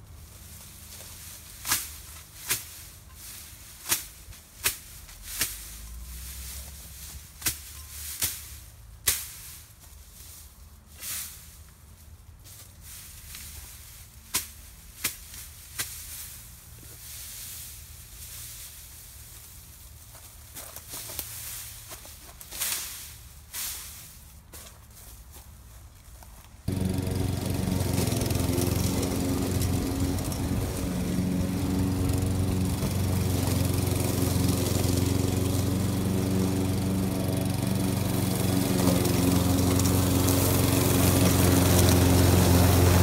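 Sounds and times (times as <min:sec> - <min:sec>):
machete swishing through grass: 0:00.2 - 0:25.4.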